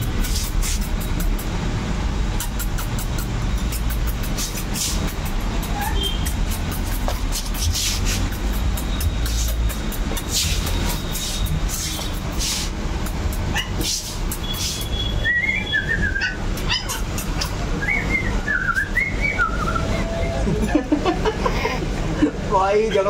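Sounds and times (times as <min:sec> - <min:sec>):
puppies scuffling on tiled floor: 0:03.6 - 0:12.8
puppies whimpering: 0:15.7 - 0:17.6.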